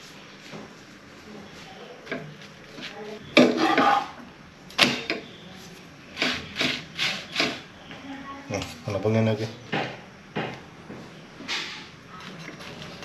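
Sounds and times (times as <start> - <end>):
utensils and pan clattering: 3.4 - 4.2.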